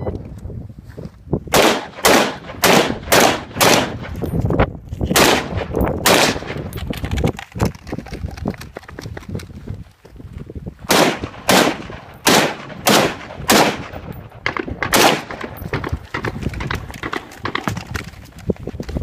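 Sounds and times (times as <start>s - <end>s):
rifle shots echoing: 1.5s - 4.2s, 5.1s - 6.7s, 10.9s - 17.8s.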